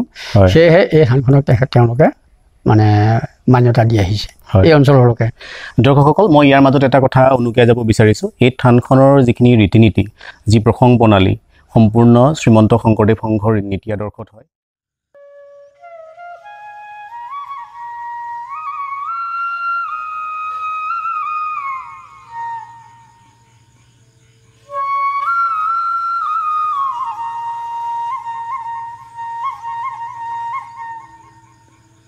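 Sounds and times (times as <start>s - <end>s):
bamboo flute melody: 15.2s - 23.4s, 24.6s - 32.0s.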